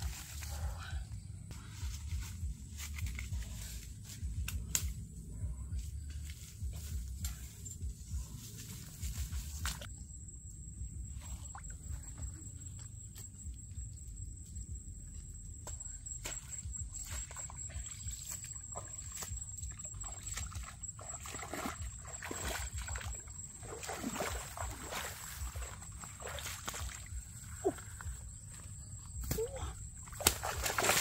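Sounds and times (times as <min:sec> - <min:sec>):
feet wading through muddy water: 0:15.6 - 0:31.0.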